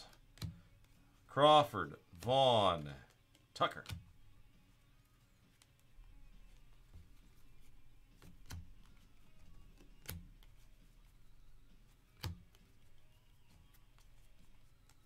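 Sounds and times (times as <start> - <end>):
cards flipped and dropped: 0.0 - 1.0, 2.1 - 4.2, 5.4 - 11.1, 11.7 - 15.0
sharp card snaps: 3.3 - 4.1, 9.8 - 10.5, 12.2 - 12.6.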